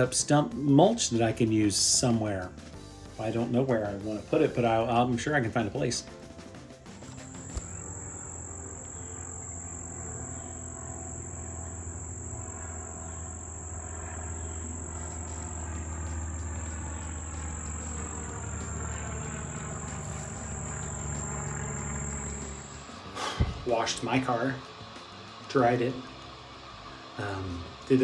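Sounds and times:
high-pitched insect call: 7.1s - 27.8s.

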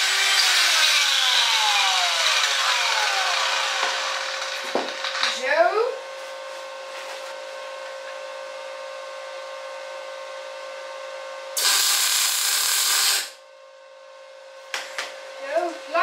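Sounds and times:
machine hum: 0.0s - 15.9s
welding arc crackling: 11.6s - 13.4s.

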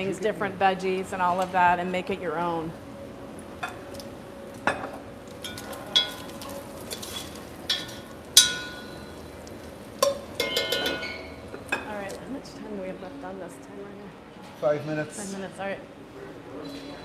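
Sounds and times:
bacon sizzling in a pot: 3.7s - 12.1s
utensil clinking against pot: 4.7s - 9.2s, 10.0s - 11.9s.

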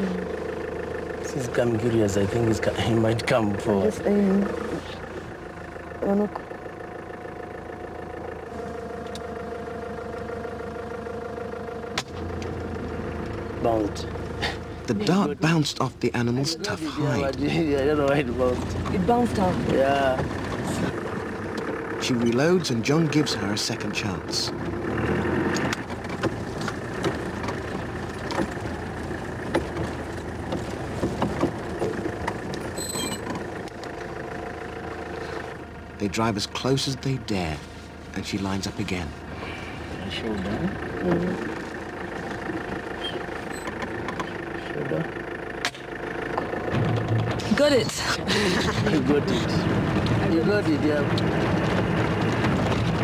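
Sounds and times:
vehicle engine running: 0.0s - 53.0s
knocks and rattles: 25.7s - 33.7s, 46.3s - 48.0s, 49.3s - 53.0s
high-pitched squeak: 32.8s - 33.3s.

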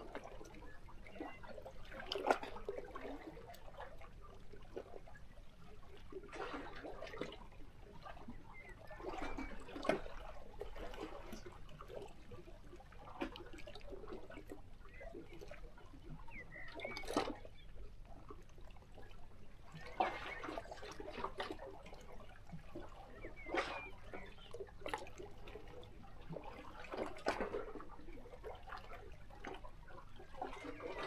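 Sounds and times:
faint bird chirps: 8.4s - 9.7s, 16.1s - 17.7s, 23.0s - 24.7s.

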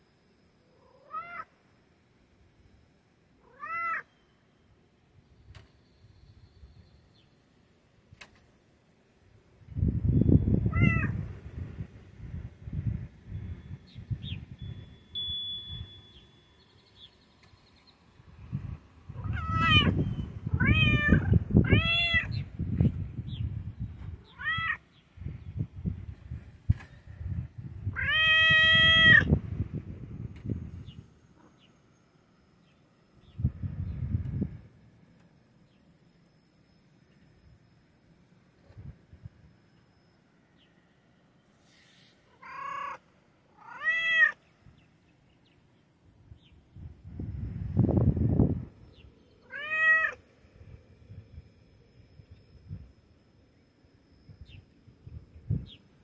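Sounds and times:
cat meowing: 0.9s - 1.5s, 3.4s - 4.1s, 10.7s - 11.2s, 19.2s - 20.0s, 20.6s - 22.4s, 24.3s - 24.8s, 27.9s - 29.3s, 42.4s - 43.0s, 43.6s - 44.4s, 49.4s - 50.2s.

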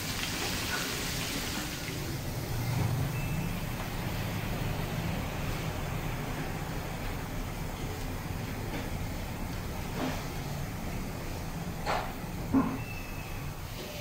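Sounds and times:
meat sizzling in a frying pan: 0.0s - 2.2s.

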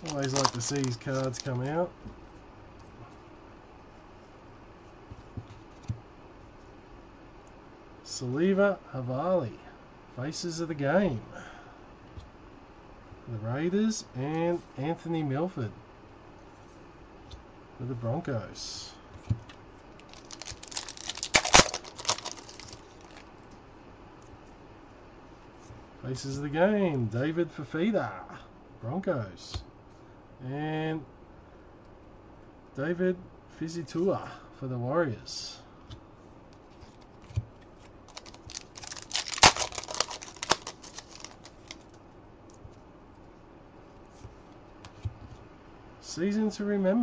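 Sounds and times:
cards and foil packs rustling: 0.0s - 1.8s, 20.0s - 23.3s, 38.1s - 41.9s.

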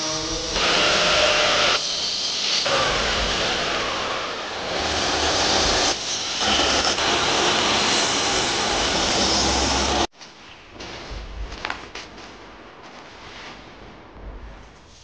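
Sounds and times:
belt sander on wood: 0.0s - 10.1s
table saw cutting wood: 0.0s - 10.1s.

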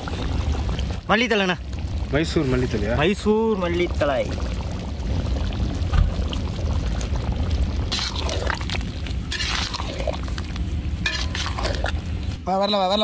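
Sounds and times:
gravy simmering: 0.0s - 12.4s
wet stirring: 7.8s - 12.3s.

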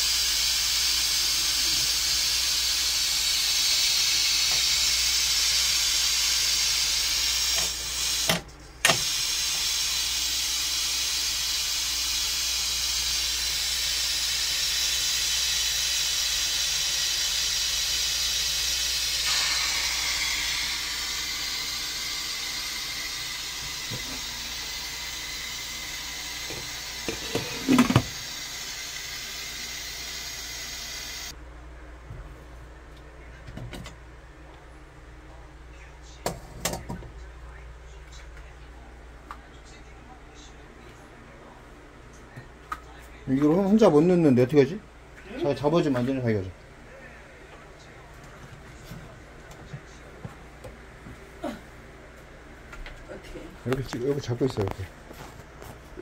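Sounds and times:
pressure cooker hissing: 0.0s - 31.4s.

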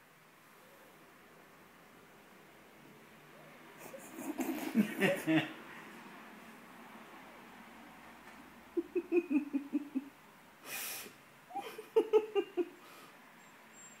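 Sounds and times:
person giggling: 3.8s - 5.6s, 8.8s - 10.1s, 11.5s - 12.8s
sharp breath drawn in: 10.6s - 11.2s.

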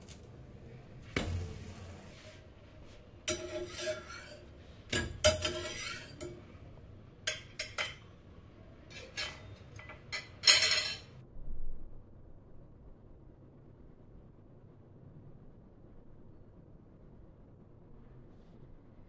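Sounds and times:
metal spatula scraping pan: 3.2s - 6.6s, 8.9s - 11.1s
spatula clinking on plate: 3.3s - 6.5s, 7.3s - 8.1s, 8.9s - 11.2s.

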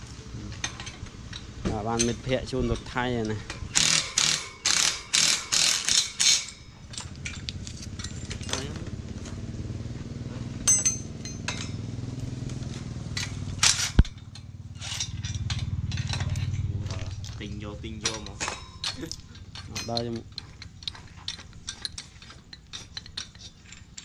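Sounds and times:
cordless drill driving a bolt: 3.7s - 6.5s.

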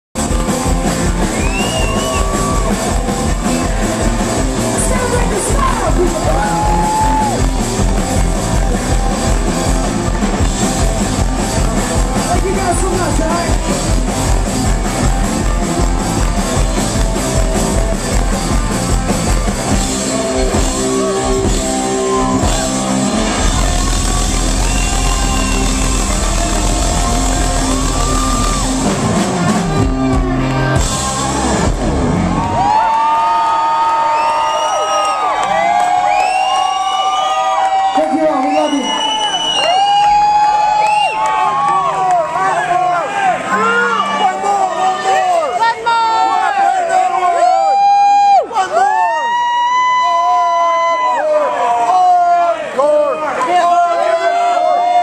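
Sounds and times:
drum kit: 0.2s - 33.4s
live rock band: 0.2s - 42.4s.

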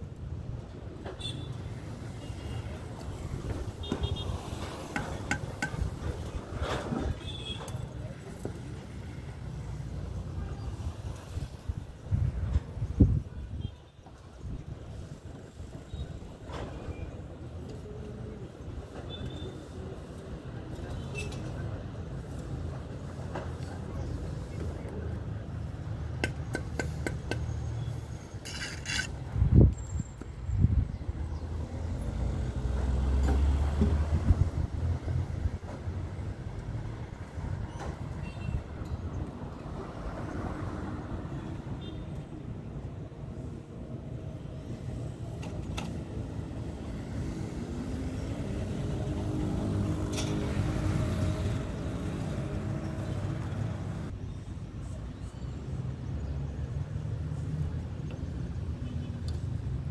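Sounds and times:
short scrape: 28.4s - 29.2s.

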